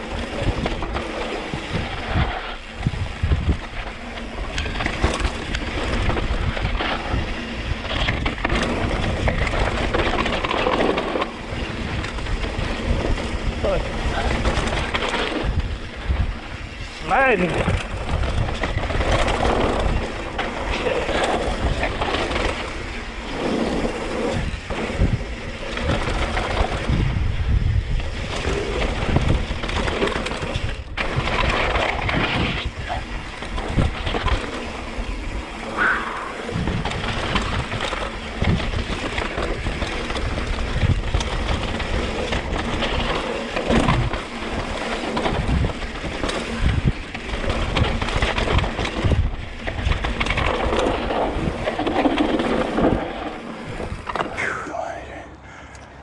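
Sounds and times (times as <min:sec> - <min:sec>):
wind on microphone: 0:00.0 - 0:03.9, 0:24.4 - 0:29.8, 0:35.6 - 0:39.8
bike knocking and rattling: 0:00.0 - 0:54.4
bike tyres grinding over dirt: 0:00.0 - 0:54.4.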